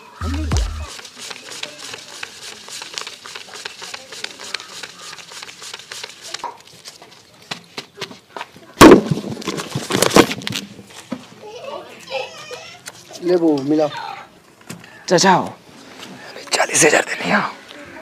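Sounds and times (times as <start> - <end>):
banknotes flicked and rustling: 0.2 - 7.4.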